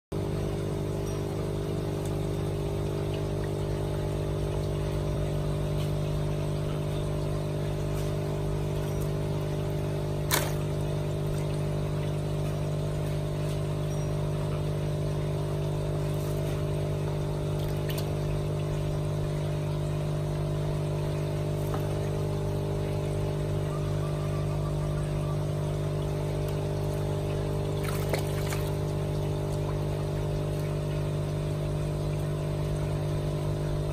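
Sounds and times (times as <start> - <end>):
electric machine hum: 0.1 - 33.9
hands splashing water: 7.8 - 13.2, 17.5 - 18.4, 27.7 - 30.8.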